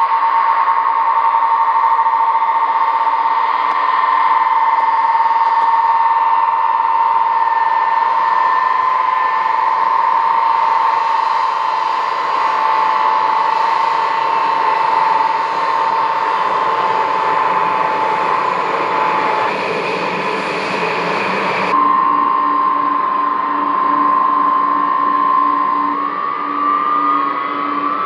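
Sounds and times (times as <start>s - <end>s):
jet engines high whine: 0.0s - 28.0s.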